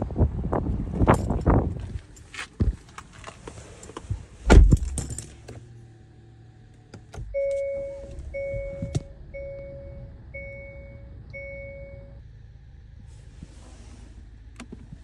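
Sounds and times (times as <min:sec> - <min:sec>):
low steady cabin hum: 0:03.7 - 0:15.0
dashboard warning chime dinging: 0:07.3 - 0:12.2.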